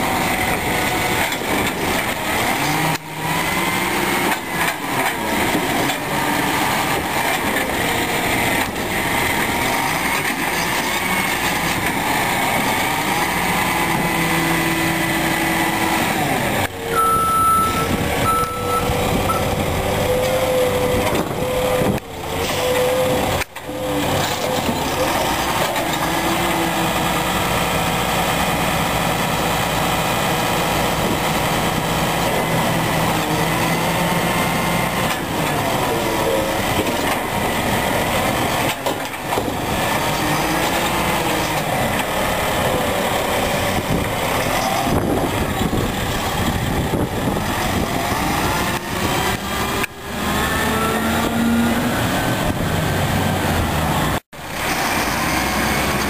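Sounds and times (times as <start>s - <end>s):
garbage truck running: 0.0s - 56.0s
short high beeps: 16.9s - 19.6s.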